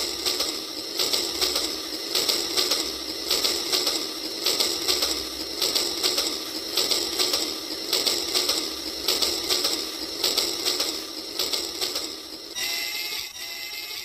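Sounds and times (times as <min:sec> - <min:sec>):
toy train clicking clatter: 0:00.0 - 0:14.0.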